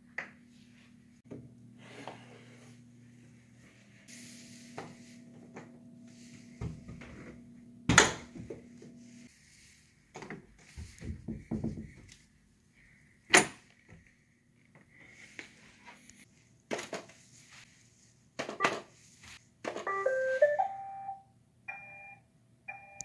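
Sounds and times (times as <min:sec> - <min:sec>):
wooden doors knocking and rattling: 0:10.8 - 0:12.1.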